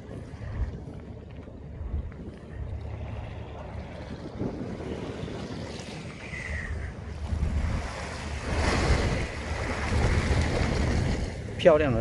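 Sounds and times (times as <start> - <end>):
wind buffeting microphone: 0.0 - 12.0
sea water washing against wall: 3.4 - 11.6.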